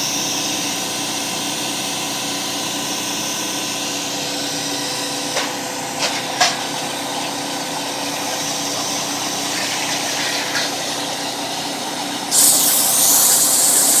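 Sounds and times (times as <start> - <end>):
machine hum: 3.8 - 14.0
loud hiss of air: 12.2 - 14.0.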